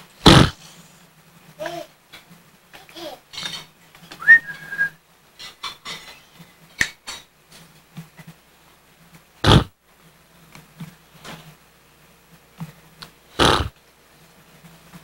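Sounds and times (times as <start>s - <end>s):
high whistle-like squeak: 4.2s - 5.0s
soft rustles and knocks: 10.0s - 11.6s.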